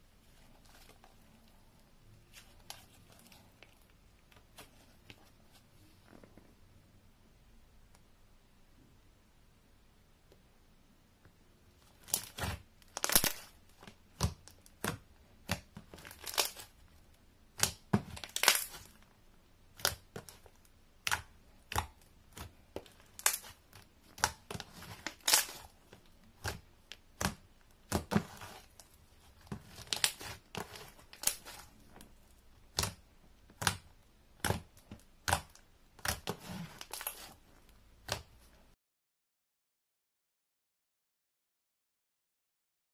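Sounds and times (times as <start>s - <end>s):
slime popping and crackling: 11.9s - 16.8s, 17.5s - 19.0s, 19.7s - 37.4s.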